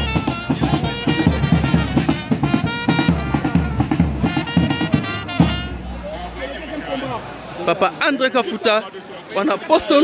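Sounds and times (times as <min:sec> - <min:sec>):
quick steady drum beat: 0:00.0 - 0:05.8.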